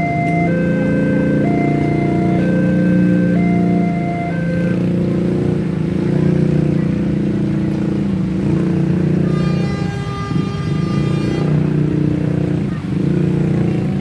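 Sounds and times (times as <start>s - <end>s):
diesel locomotive drone: 0.0s - 14.0s
train horn: 8.4s - 11.9s.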